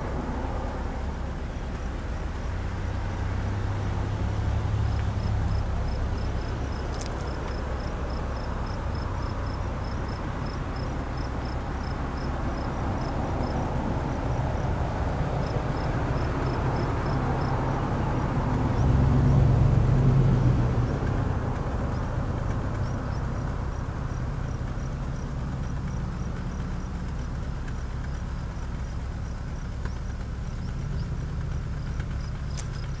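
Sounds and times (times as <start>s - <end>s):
insect chirping: 1.4s - 19.2s, 21.8s - 33.0s
steady low rumble: 4.9s - 17.5s.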